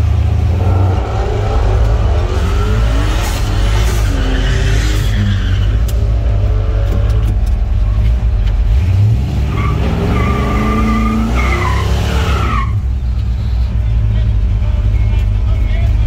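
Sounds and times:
engine revving: 0.0 - 12.8
race car engines rumbling: 0.0 - 16.0.

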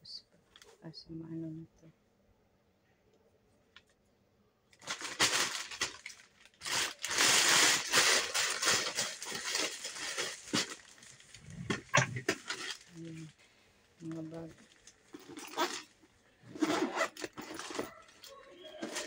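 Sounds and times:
plastic bag rustling: 4.8 - 13.4, 14.1 - 19.0.

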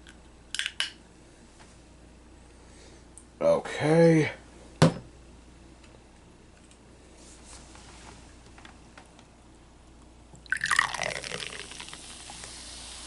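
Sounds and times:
soda pouring into a glass: 10.4 - 13.0
soda foam fizzing: 10.5 - 13.0.

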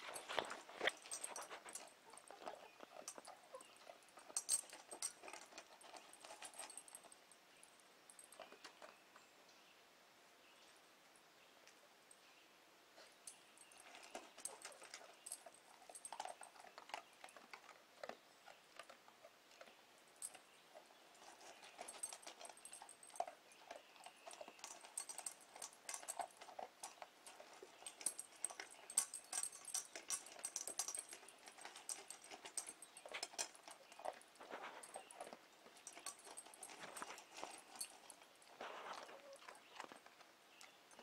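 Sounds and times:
dog crunching kibble: 0.0 - 7.3, 13.7 - 41.0.

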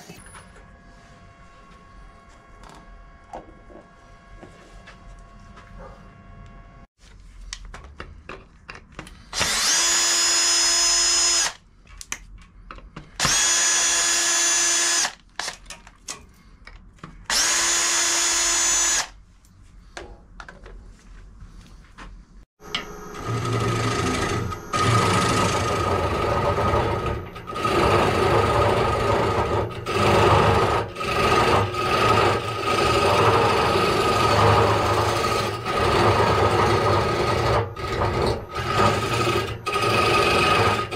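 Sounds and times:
power drill driving screws: 9.4 - 11.6, 13.2 - 15.5, 17.3 - 19.1, 23.2 - 40.9
gouge cutting spinning wood: 22.6 - 40.9
wood lathe running: 22.6 - 40.9.

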